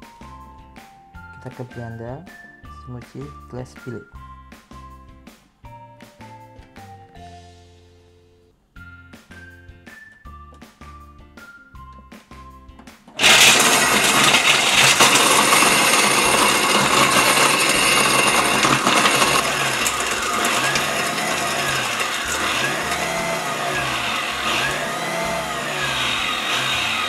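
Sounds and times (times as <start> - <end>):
blender motor running: 13.2 - 27.0
ice grinding and rattling: 13.2 - 27.0.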